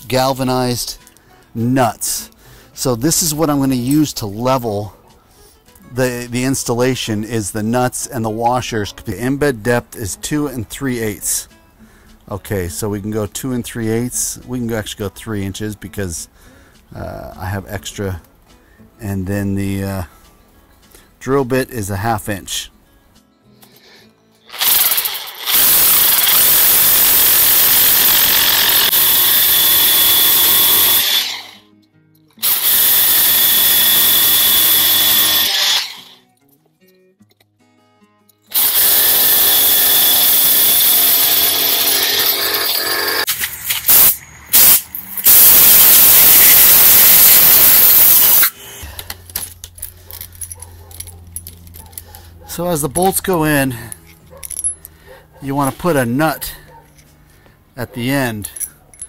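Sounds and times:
rotary hammer drilling concrete: 24.5s - 31.7s, 32.4s - 36.2s, 38.5s - 48.6s
light handling sounds: 48.9s - 55.0s.

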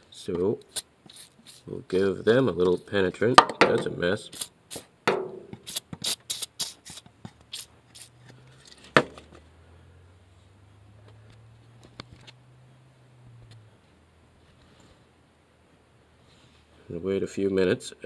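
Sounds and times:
aerosol spray squirts: 0.7s - 1.7s, 4.3s - 4.9s, 5.6s - 8.2s
sharp knock: 5.1s - 5.7s.

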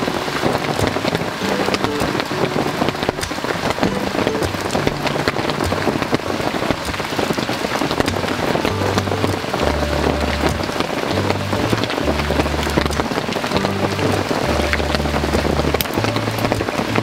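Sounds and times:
heavy rain pattering: 0.0s - 17.0s.

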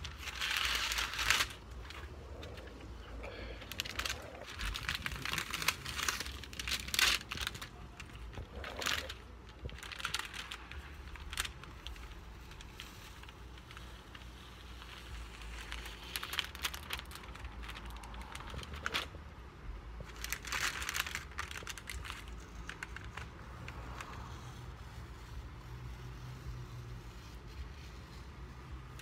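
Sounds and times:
tape peeling and paper crinkling: 0.0s - 19.4s, 20.0s - 29.0s.

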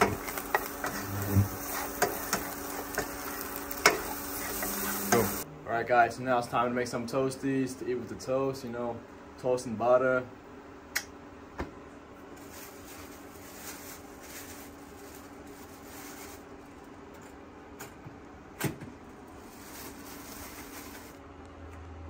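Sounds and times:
low appliance hum: 0.0s - 22.0s
plastic bag rustling: 12.4s - 16.9s, 19.1s - 21.2s.

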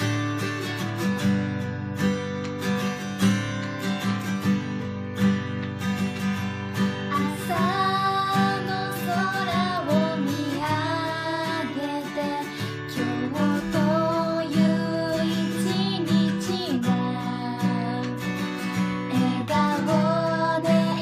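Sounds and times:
acoustic guitar strumming: 0.0s - 21.0s
woman singing: 7.1s - 21.0s.

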